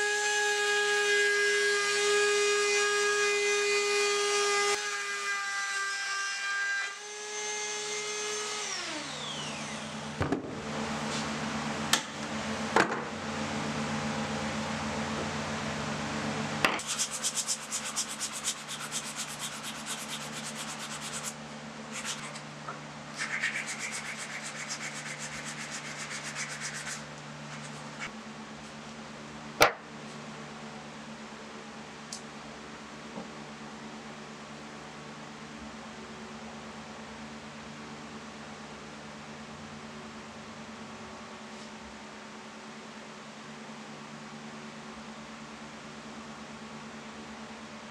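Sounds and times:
router whining and spinning down: 0:08.5 - 0:10.2
steady low hum: 0:09.8 - 0:47.9
hand sanding wood: 0:16.8 - 0:22.5, 0:23.1 - 0:28.2.

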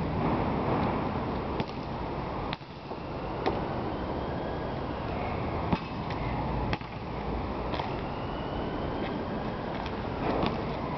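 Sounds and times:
basketball bouncing on asphalt: 0:01.5 - 0:01.9, 0:05.6 - 0:08.0, 0:09.7 - 0:10.8.

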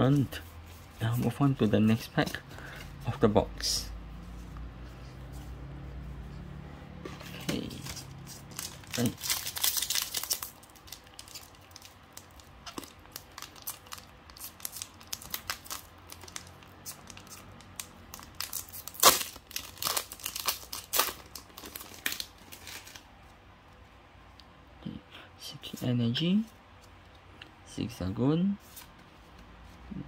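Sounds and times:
foil wrapper tearing and crinkling: 0:07.6 - 0:23.0.

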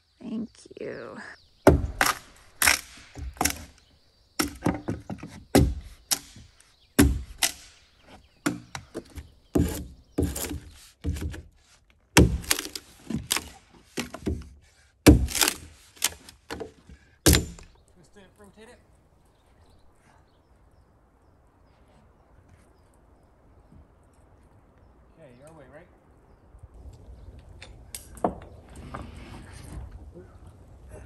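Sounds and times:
axe chopping into log: 0:01.7 - 0:03.8, 0:04.4 - 0:07.8, 0:08.4 - 0:11.5, 0:12.2 - 0:17.7.

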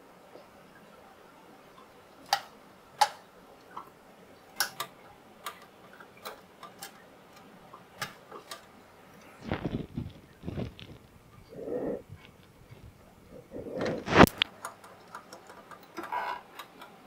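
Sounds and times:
plastic parts clicking and tapping: 0:02.2 - 0:03.9, 0:04.5 - 0:08.8, 0:13.8 - 0:17.0
rustling and knocking: 0:09.4 - 0:11.1.

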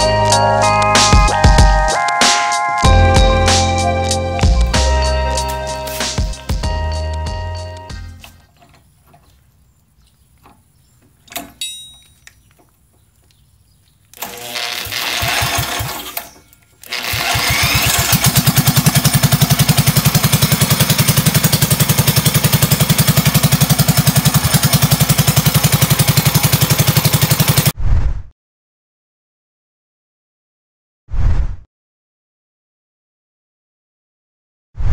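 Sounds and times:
cordless drill spinning engine: 0:14.2 - 0:27.7
small engine running: 0:14.2 - 0:27.7.

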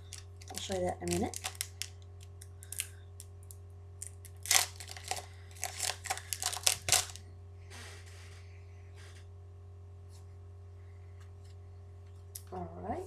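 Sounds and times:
cards and wrapper rustling: 0:00.0 - 0:02.9, 0:04.0 - 0:07.2
steady low hum: 0:00.0 - 0:13.0.

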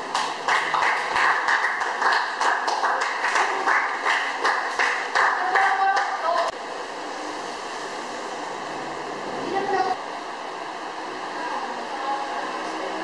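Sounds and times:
people clapping: 0:00.0 - 0:06.6.

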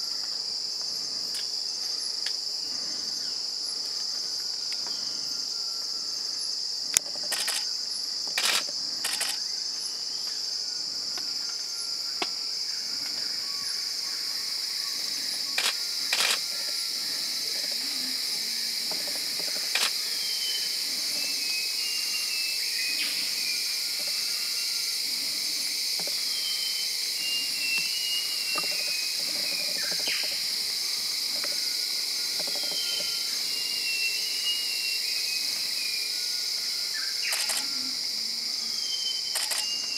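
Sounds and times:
insects chirring: 0:00.0 - 0:39.9
sharp clicks: 0:07.2 - 0:07.7, 0:08.4 - 0:09.4, 0:37.3 - 0:37.7, 0:39.3 - 0:39.7.

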